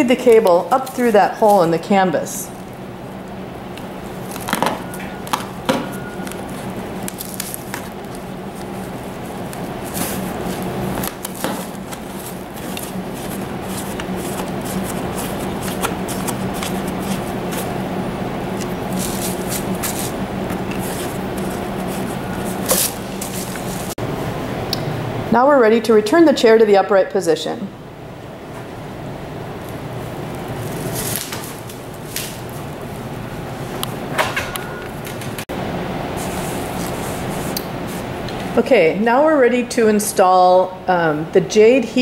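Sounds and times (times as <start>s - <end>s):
cable and plastic wrap rustling: 0.0s - 1.9s, 3.8s - 17.8s, 18.5s - 24.0s, 30.3s - 33.1s
steady low hum: 0.0s - 42.0s.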